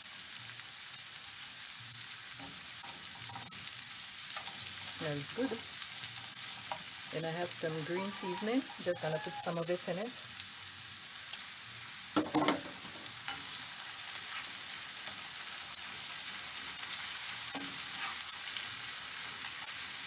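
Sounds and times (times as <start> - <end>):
vegetables sizzling in oil: 0.0 - 20.0
spatula scraping pan: 4.3 - 9.9, 12.3 - 16.0, 17.5 - 18.4.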